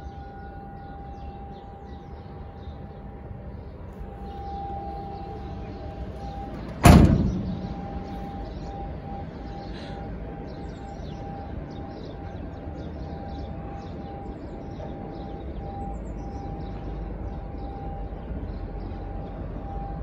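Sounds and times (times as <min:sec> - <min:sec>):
van door slamming: 0:06.2 - 0:08.6.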